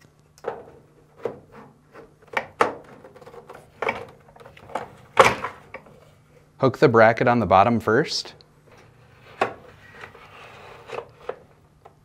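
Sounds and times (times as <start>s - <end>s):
plastic knocks and scrapes: 0.4s - 6.0s, 8.7s - 12.0s.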